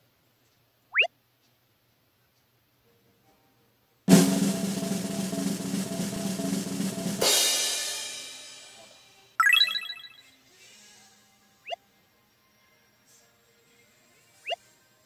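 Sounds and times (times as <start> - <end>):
snare drum roll: 4.1 - 8.6
cymbal crash: 4.1 - 8.8
bright chiming effect: 9.4 - 10.2.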